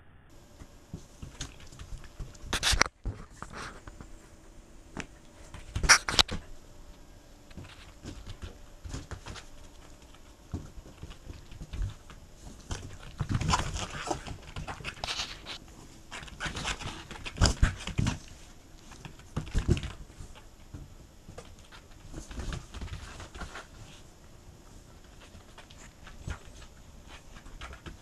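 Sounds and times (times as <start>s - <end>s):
balloon bumping and rubbing: 5.4s - 6.5s.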